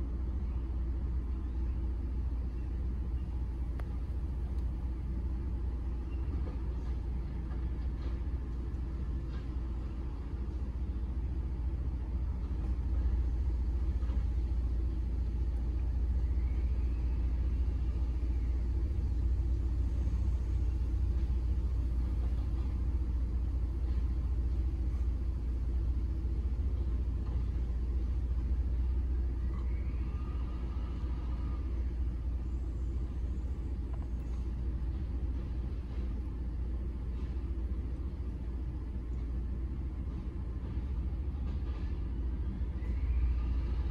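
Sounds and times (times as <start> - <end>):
low engine rumble: 0.0 - 43.9
faint rising and falling whine: 10.8 - 40.2.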